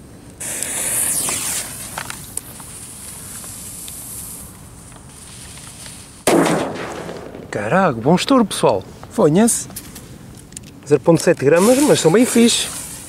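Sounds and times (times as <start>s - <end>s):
fuse hissing and spitting: 0.4s - 4.5s, 11.6s - 13.0s
firecracker bang: 6.2s - 8.2s.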